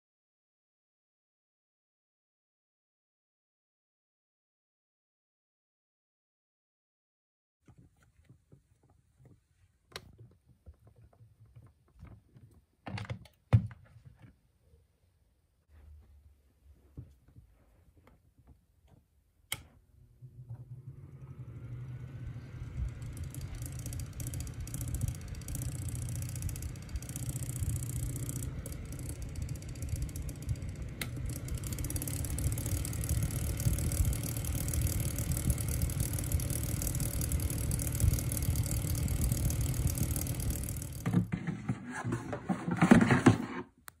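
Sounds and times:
fan motor humming: 19.5s - 42.2s.

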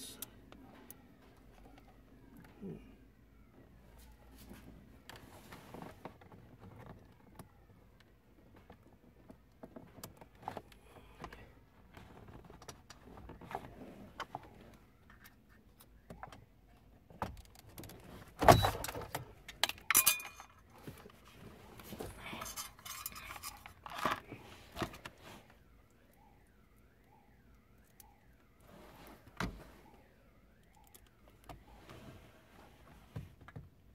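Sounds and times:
light metal rattles and scraping: 17.5s - 25.2s.

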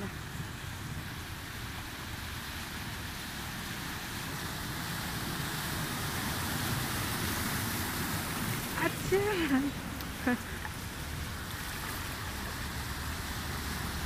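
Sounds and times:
car churning through floodwater: 0.0s - 14.0s.

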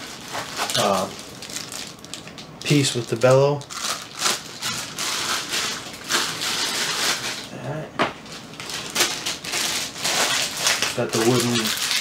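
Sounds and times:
plastic bag crinkling: 0.0s - 7.6s, 8.2s - 12.0s.

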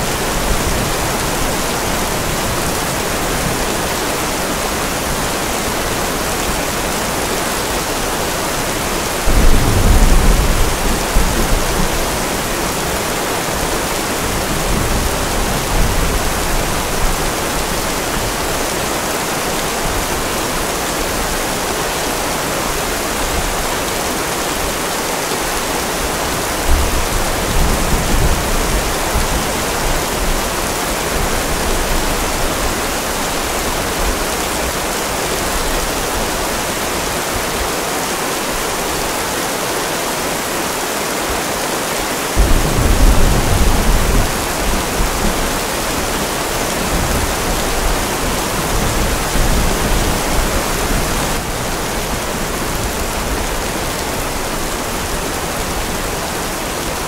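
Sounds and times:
rain hiss: 0.0s - 57.0s
rolling thunder: 9.2s - 12.7s, 42.4s - 54.0s.

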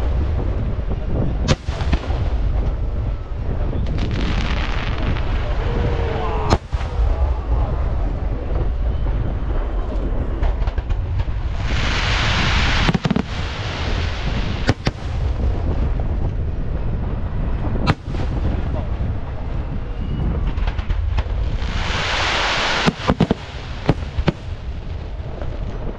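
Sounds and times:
low rumble: 0.0s - 25.9s
firework shells bursting: 22.1s - 24.6s.

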